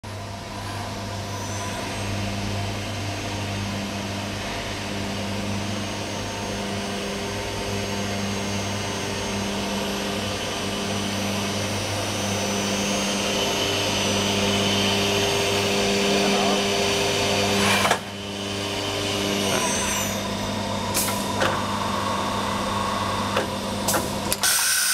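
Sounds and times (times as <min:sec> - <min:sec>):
drilling machine humming and whining: 0:00.1 - 0:24.9.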